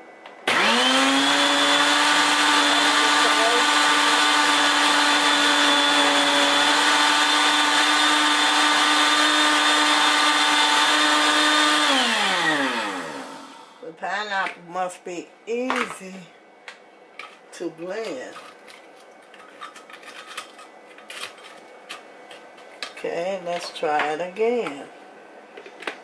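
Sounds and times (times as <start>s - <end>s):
blender motor running: 0.4s - 13.8s.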